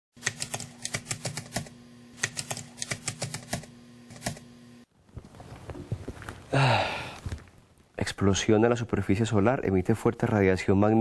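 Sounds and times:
keys being typed: 0.2 - 4.4
steady hum: 0.2 - 9.6.

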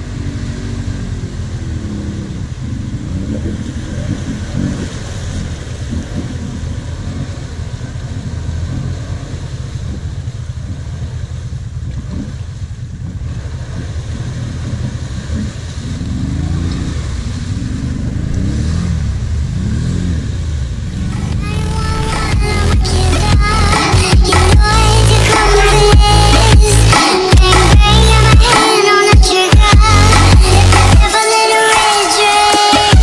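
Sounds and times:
low engine rumble: 0.0 - 28.6, 29.6 - 31.1
quad engine revving: 0.0 - 33.0.

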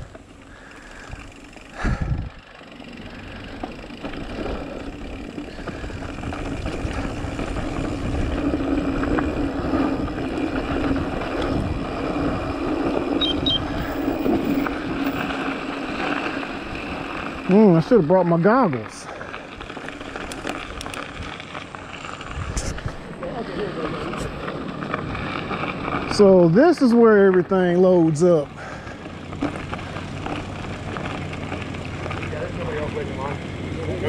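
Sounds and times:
bike tyre rumble on dirt: 0.0 - 34.0
wind rush: 1.0 - 2.4, 5.7 - 15.3, 22.2 - 23.2.

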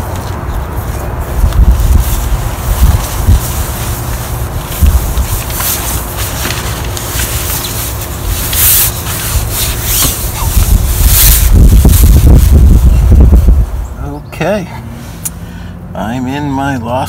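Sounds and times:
wind buffeting microphone: 0.0 - 8.5, 9.1 - 14.2.

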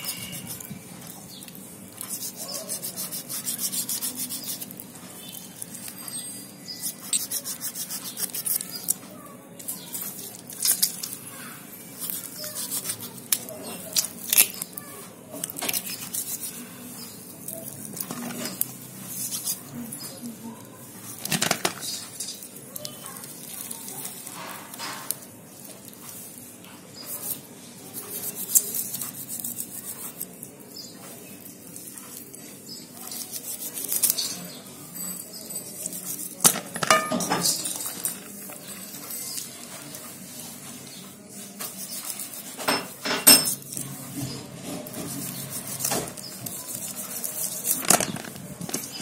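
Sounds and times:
clinks against metal bowl: 36.5 - 38.2.

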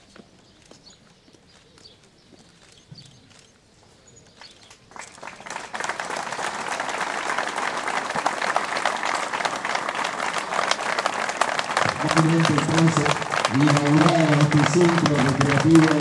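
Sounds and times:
crowd applause: 4.9 - 16.0.

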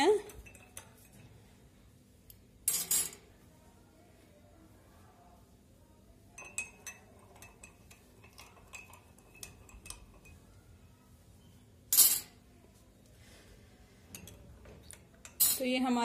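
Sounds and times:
spoon clinking in glass cup: 0.2 - 1.2, 6.4 - 10.5.

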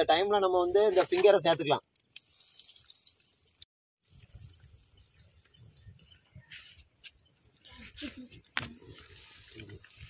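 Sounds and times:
hot oil sizzling and crackling: 0.9 - 6.8, 8.5 - 10.0.

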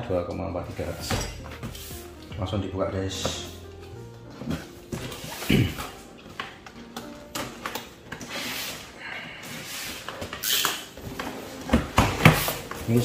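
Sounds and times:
box cutter slitting tape: 10.3 - 10.9.

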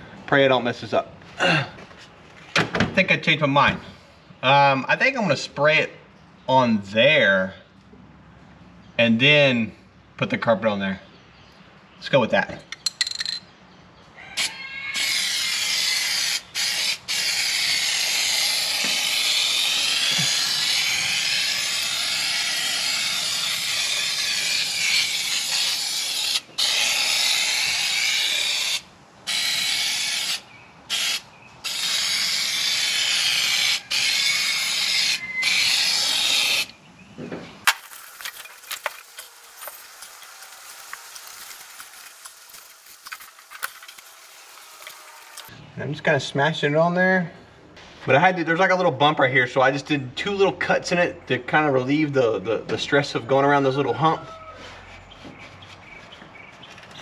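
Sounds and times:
aerosol can spraying: 15.0 - 36.7.

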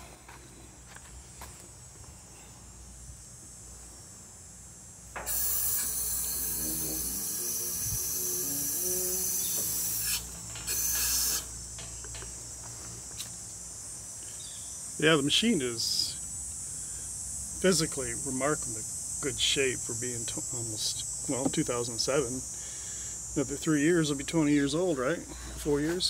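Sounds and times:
air release hissing: 5.2 - 12.2.

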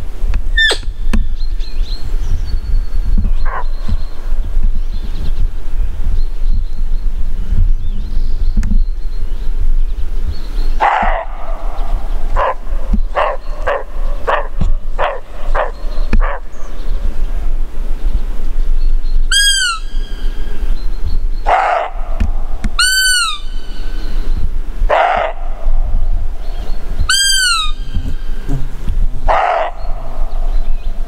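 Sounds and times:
high whistled calls: 0.5 - 2.0, 18.8 - 21.8, 22.8 - 24.6, 26.4 - 31.0
deer barking: 21.5 - 22.1, 24.9 - 25.6, 27.1 - 30.2.

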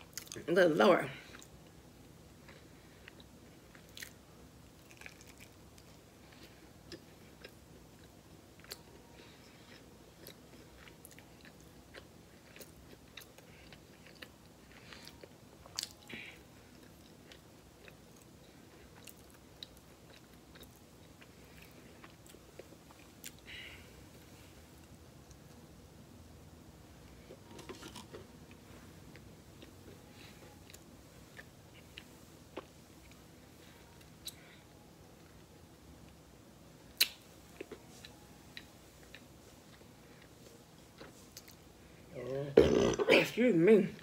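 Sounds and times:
faint chewing: 2.4 - 25.6, 27.1 - 35.3, 37.0 - 41.7
mouth clicks and smacks: 37.0 - 37.2.

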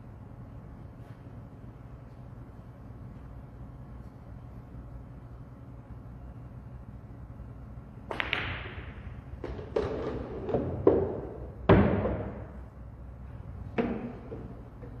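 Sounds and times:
billiard balls clicking: 8.1 - 11.5
cue tip striking ball: 8.1 - 12.4.

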